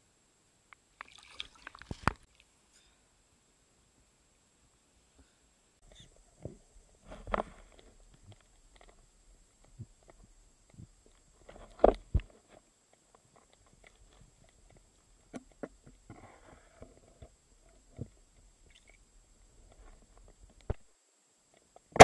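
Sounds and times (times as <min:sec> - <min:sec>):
muffled underwater clicks and knocks: 0:05.9 - 0:19.0.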